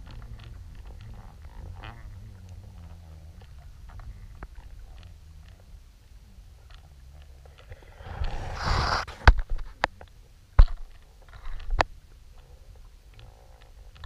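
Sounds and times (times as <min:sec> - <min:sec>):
low underwater rumble: 0:00.0 - 0:09.1
rushing scrape: 0:07.7 - 0:09.3.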